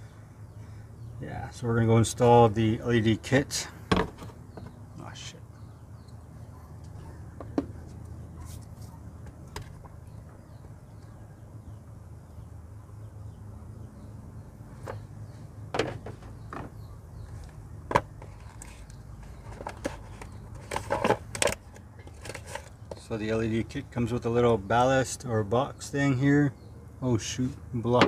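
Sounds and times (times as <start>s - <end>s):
clicks and knocks of handled parts: 15.7s - 23.1s.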